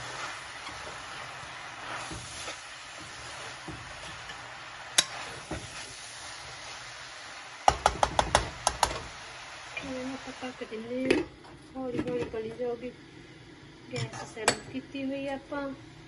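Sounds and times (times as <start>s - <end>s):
spoon stirring cabbage in a pan: 0.0s - 10.0s.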